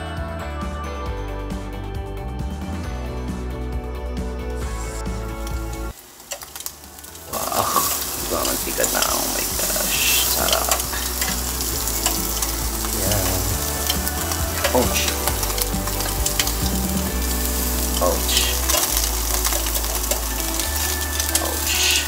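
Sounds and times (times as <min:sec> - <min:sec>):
meat sizzling on grill: 0:04.6 - 0:22.0.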